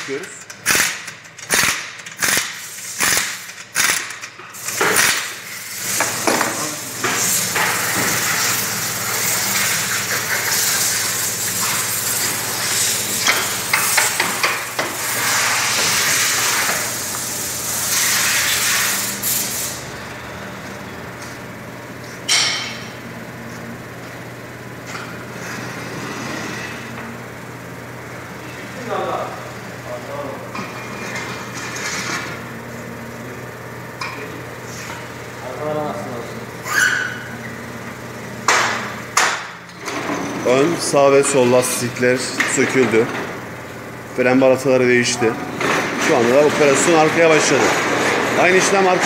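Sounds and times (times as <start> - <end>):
pneumatic impact wrench rattling: 0.0 - 19.9.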